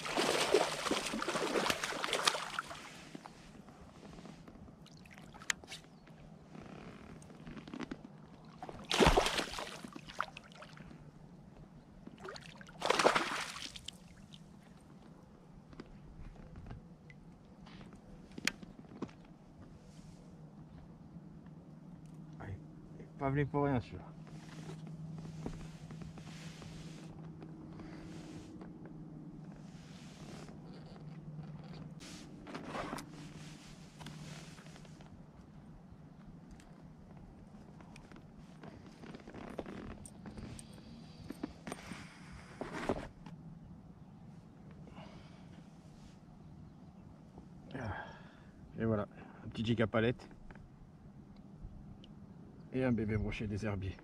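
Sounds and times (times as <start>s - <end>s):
fish splashing at surface: 0.0s - 2.8s, 8.8s - 10.4s, 12.8s - 13.9s
rustling of hands and clothing: 1.9s - 4.8s, 24.2s - 35.6s, 36.3s - 43.3s
steady low hum: 14.1s - 54.0s.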